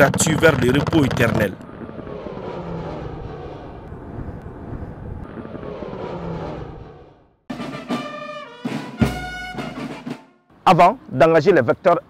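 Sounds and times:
military aircraft engine passing: 0.0s - 8.2s.

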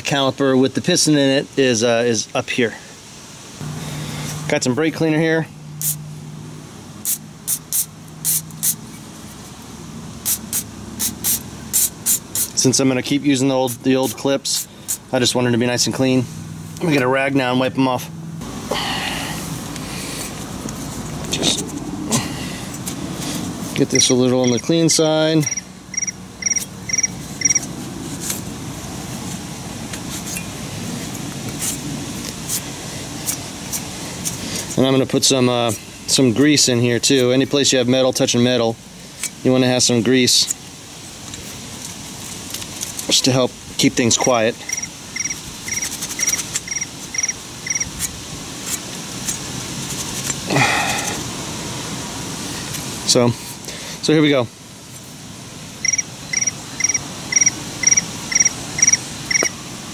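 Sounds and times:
aerosol spray hissing: 5.8s - 6.0s, 7.0s - 8.8s, 10.2s - 12.6s
cricket chirping: 23.9s - 24.7s, 25.4s - 27.7s, 44.2s - 47.9s, 55.8s - 59.6s
cloth rag scrubbing metal: 44.1s - 47.3s.

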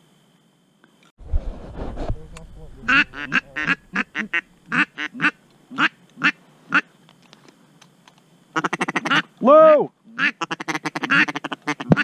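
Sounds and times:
duck call quacks: 2.8s - 6.8s, 8.6s - 9.3s, 10.1s - 12.0s.

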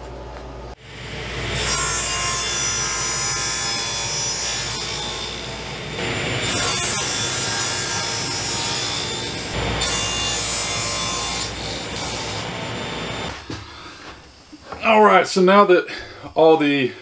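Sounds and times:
table saw cutting plywood: 0.8s - 13.4s.

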